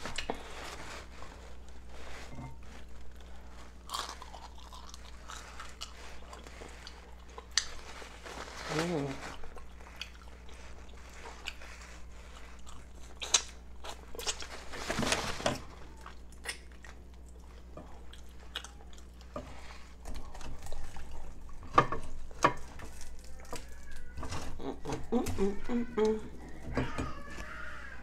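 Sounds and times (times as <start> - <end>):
chewing and lip-smacking: 3.2 - 8.0, 9.3 - 14.7, 15.9 - 25.0.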